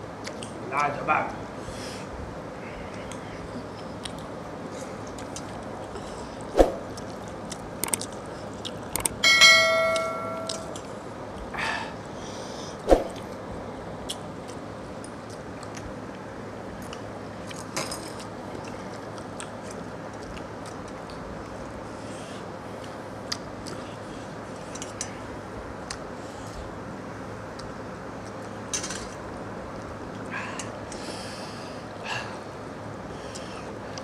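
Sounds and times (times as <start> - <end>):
ringing metallic clang: 9.2 - 10.8.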